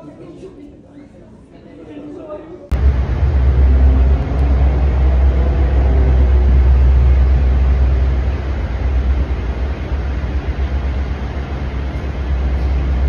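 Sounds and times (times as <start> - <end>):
truck engine rumbling: 2.7 - 13.0.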